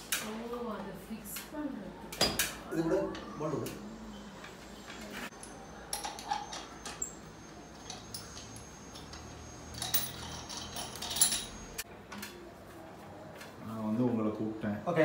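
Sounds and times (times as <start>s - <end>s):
light metallic clicks and clinks: 5.3s - 11.8s.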